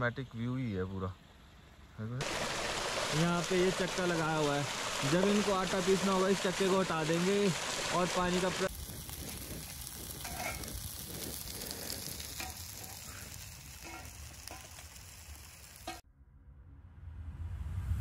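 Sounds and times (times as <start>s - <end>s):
flowing water rushing: 2.2s - 16.0s.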